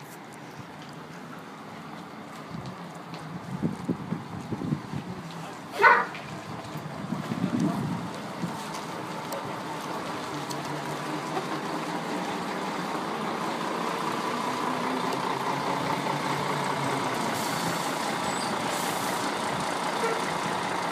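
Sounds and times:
bus diesel engine: 0.0 - 20.9
hiss: 17.3 - 19.3.

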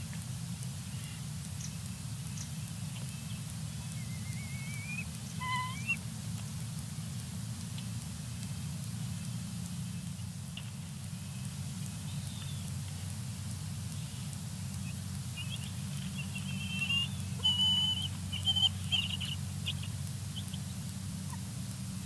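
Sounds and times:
steady low hum: 0.0 - 22.0
eagle whistled calls: 3.0 - 6.0, 14.8 - 20.7.

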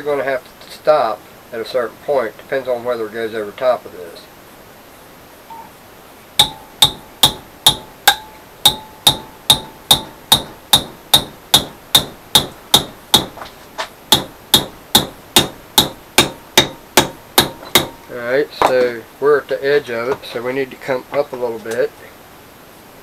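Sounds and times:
hammer striking steel rod: 6.4 - 13.5, 14.1 - 18.1.

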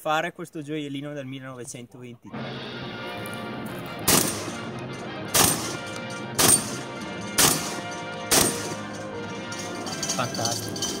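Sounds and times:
shotgun shots: 4.0 - 8.9.

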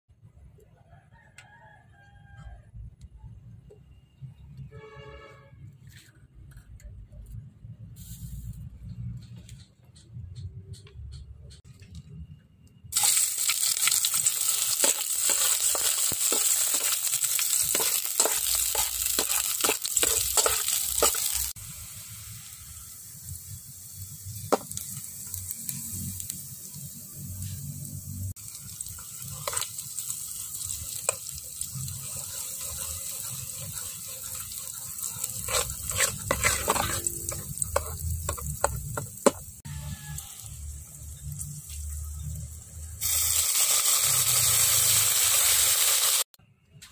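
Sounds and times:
food sizzling in hot oil: 12.9 - 46.3
metal ladle scraping in pot: 14.8 - 21.5, 29.3 - 29.7, 31.8 - 40.3.

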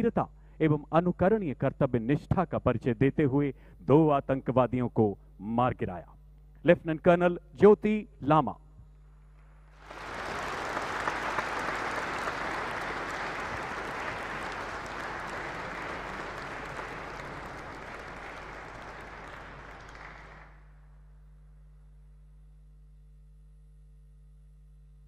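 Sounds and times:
audience applauding: 9.8 - 20.6.

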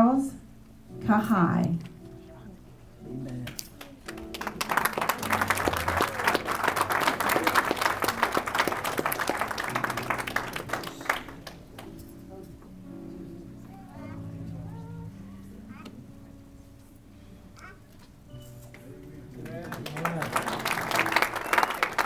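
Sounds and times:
quiet background music: 0.0 - 22.0
audience applauding: 3.8 - 11.9, 19.3 - 22.0.

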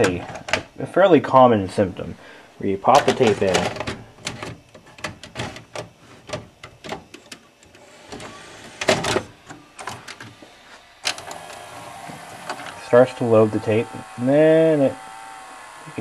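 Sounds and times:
motor running steadily: 7.8 - 16.0.

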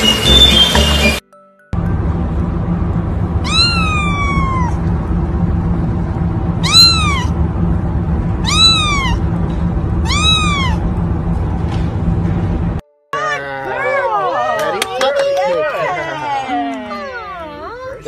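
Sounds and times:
low hum: 1.7 - 12.8
kitten meowing: 3.4 - 4.8, 6.6 - 7.3, 8.4 - 9.2, 10.0 - 10.8.

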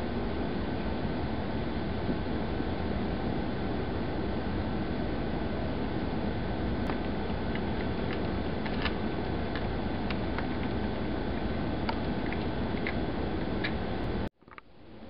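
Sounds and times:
steady rushing background noise: 0.0 - 14.7
kittens crunching peanuts: 6.9 - 10.8.

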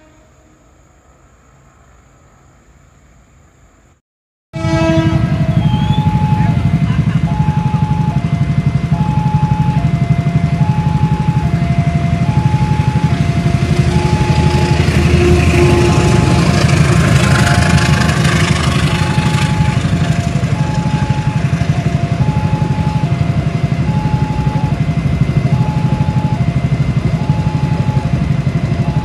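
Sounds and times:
train coaches rumbling: 4.6 - 29.0
two-tone crossing alarm chime: 5.4 - 16.4, 18.8 - 29.0.

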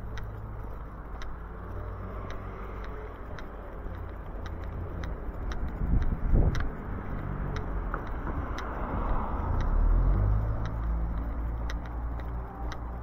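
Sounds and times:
car passing with tyre noise: 0.0 - 13.0
light regular clicks: 0.0 - 13.0.

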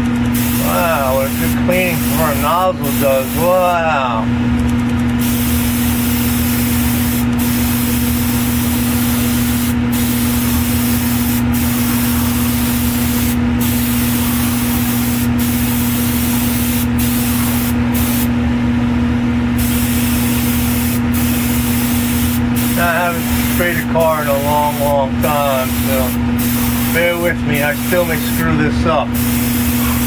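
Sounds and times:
low motor hum: 0.0 - 30.0
airbrush hissing: 0.3 - 3.8, 5.2 - 18.3, 19.6 - 28.4, 29.1 - 30.0.

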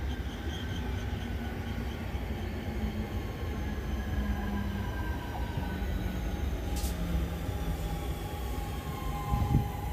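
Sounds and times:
electric train humming: 0.0 - 9.9.

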